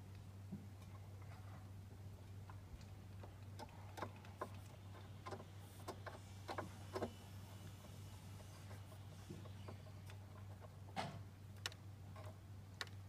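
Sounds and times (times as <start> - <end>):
steady low hum: 0.0 - 13.0
faint clicks and taps: 9.3 - 13.0.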